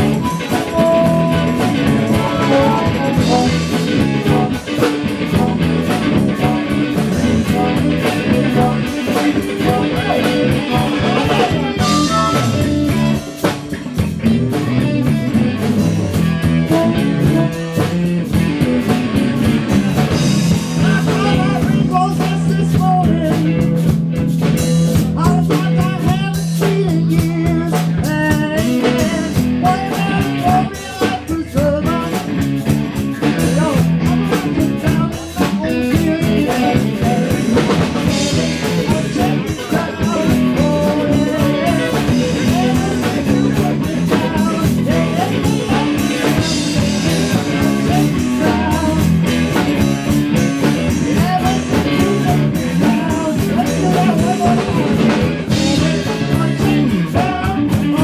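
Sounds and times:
drum kit: 0:00.0 - 0:58.0
electric guitar: 0:00.0 - 0:58.0.

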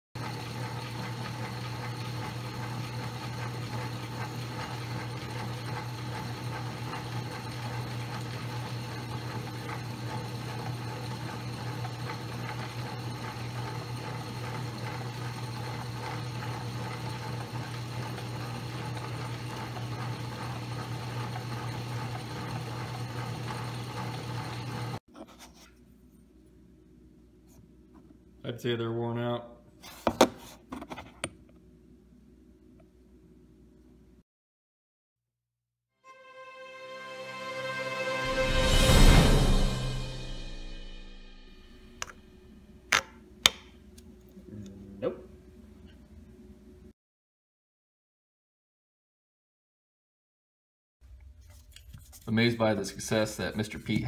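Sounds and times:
electric motor hum: 0:00.2 - 0:25.0.

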